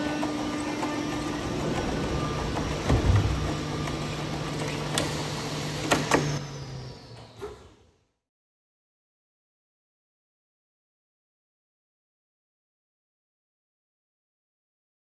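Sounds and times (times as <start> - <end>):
metal tracks clattering: 0.0 - 6.1
electric motors running: 0.0 - 8.1.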